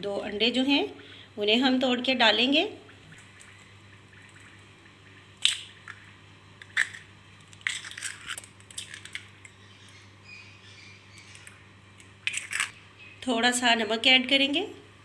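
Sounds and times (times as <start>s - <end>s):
eggs cracking against bowl: 3.1s - 10.0s, 11.1s - 12.8s
shells crunching: 6.6s - 9.3s, 12.2s - 12.8s.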